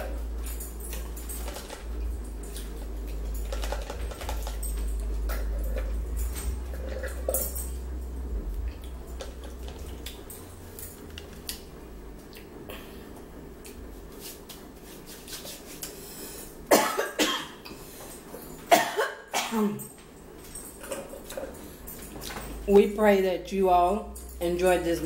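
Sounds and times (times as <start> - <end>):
person coughing: 16.7 - 17.6, 18.7 - 19.9.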